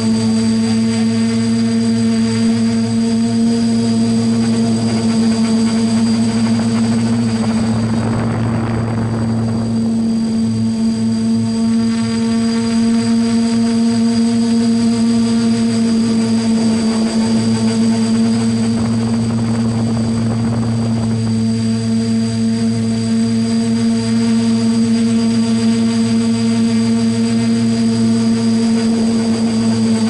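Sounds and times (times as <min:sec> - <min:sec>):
drone motors humming: 0:00.0 - 0:30.0
wind noise rush: 0:04.7 - 0:11.5, 0:17.5 - 0:23.0.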